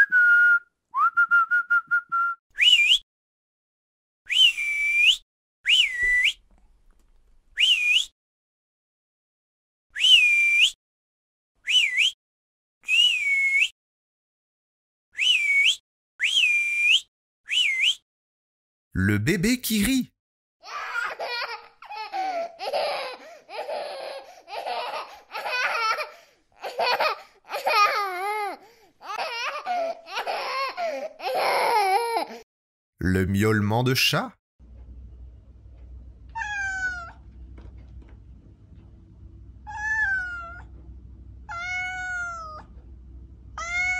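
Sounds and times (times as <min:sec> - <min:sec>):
person whistling: 0:00.0 - 0:03.0, 0:04.3 - 0:06.4, 0:07.6 - 0:08.1, 0:10.0 - 0:10.8, 0:11.7 - 0:12.2, 0:12.8 - 0:13.7, 0:15.2 - 0:18.0
baby laughing: 0:20.6 - 0:32.4.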